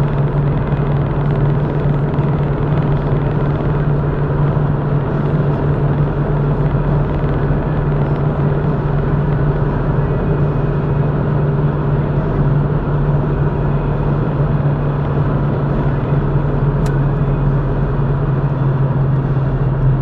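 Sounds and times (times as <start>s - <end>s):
low engine hum: 0.0s - 20.0s
tyre and road noise: 0.0s - 20.0s.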